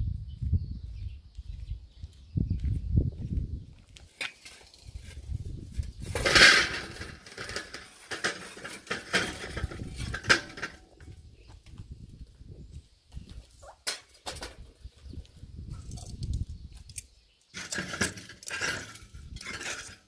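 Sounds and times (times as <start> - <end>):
charcoal briquettes clattering on grate: 5.9 - 10.9, 16.9 - 20.0.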